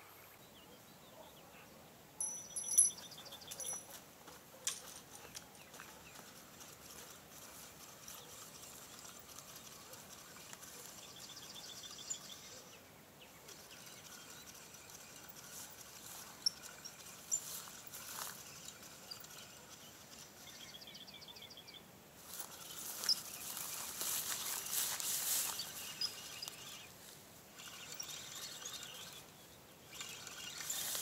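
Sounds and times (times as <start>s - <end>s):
background noise: 0.0s - 31.0s.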